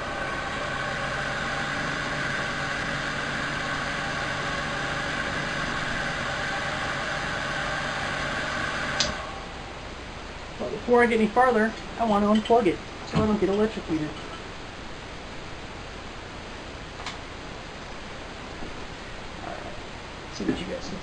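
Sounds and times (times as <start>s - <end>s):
hair dryer fan humming: 0.0s - 10.0s
hair dryer switch click: 9.0s - 9.2s.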